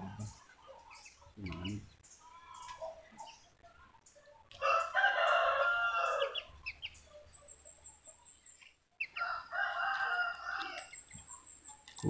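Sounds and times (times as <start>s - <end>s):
rooster crowing: 4.6s - 6.5s, 9.2s - 11.0s.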